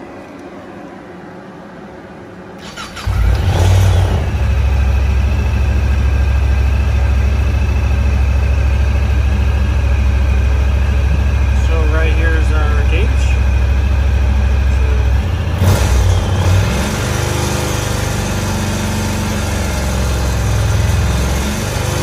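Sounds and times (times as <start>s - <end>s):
engine starter cranking: 2.6s - 4.0s
engine idling: 2.6s - 22.0s.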